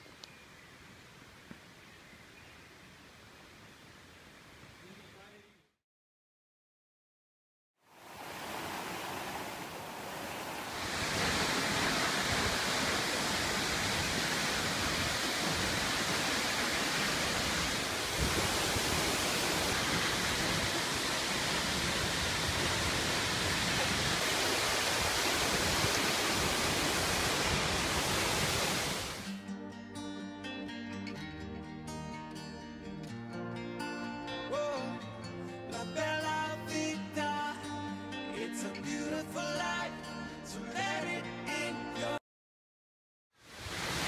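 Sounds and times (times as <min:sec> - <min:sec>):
rush of falling water: 0:07.9 - 0:29.3, 0:43.4 - 0:44.0.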